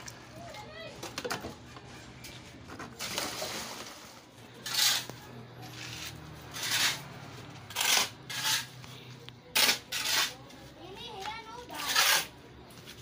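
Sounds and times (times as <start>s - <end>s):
shovel scraping concrete: 3.0s - 8.8s, 9.5s - 10.5s, 11.6s - 12.4s.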